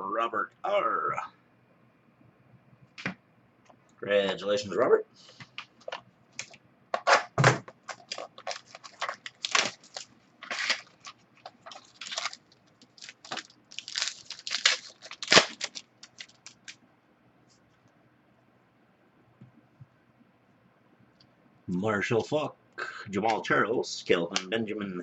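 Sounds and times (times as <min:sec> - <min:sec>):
plastic packaging crinkling: 0:05.7 - 0:16.8.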